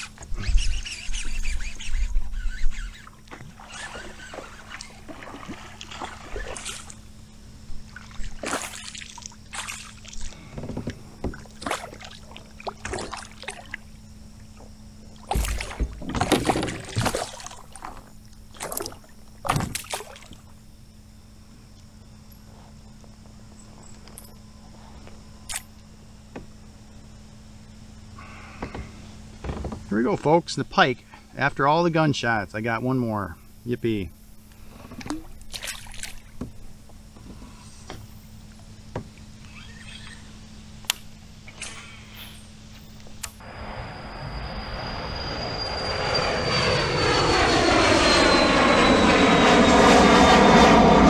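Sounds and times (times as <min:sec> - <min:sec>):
faint steady hum: 0:00.0 - 0:47.5
fish thrashing and splashing: 0:07.9 - 0:10.3, 0:15.2 - 0:20.4, 0:35.5 - 0:36.3.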